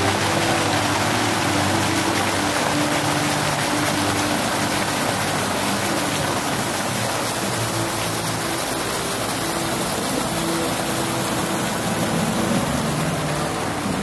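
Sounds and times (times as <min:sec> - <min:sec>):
fountain water splashing: 0:00.0 - 0:14.0.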